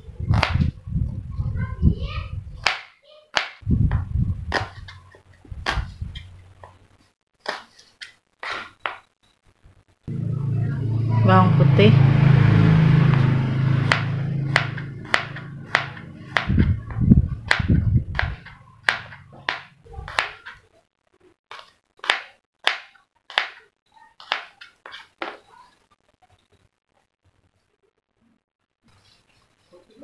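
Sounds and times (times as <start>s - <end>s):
low rumble: 10.1s - 19.4s
knife knocking on cutting board: 17.5s - 20.4s.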